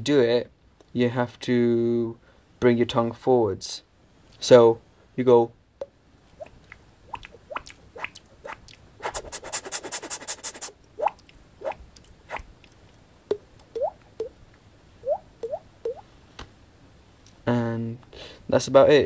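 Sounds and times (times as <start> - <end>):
sharp mouth clicks: 6.4 - 14.3.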